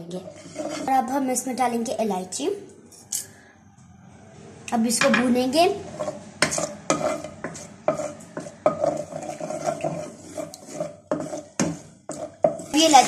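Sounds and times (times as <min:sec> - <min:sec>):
wooden spatula scraping wok: 0:00.0 - 0:01.6, 0:05.4 - 0:13.0.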